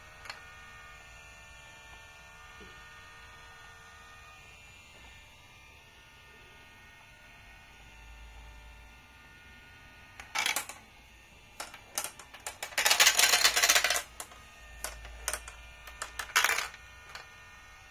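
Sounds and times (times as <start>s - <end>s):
faint motor hum: 0.0s - 17.9s
marbles clattering through track: 10.2s - 10.8s, 11.6s - 17.3s.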